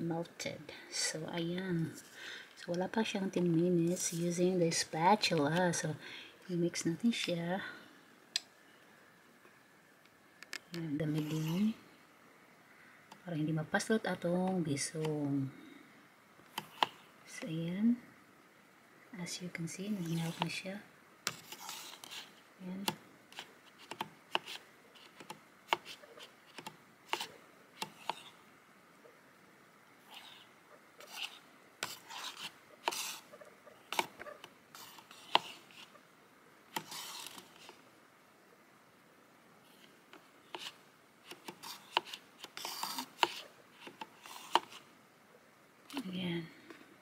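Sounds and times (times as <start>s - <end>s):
wooden spatula scraping metal pot: 11.0s - 11.7s, 20.0s - 20.6s, 21.3s - 22.4s, 31.0s - 35.9s, 36.8s - 37.8s, 41.6s - 43.4s.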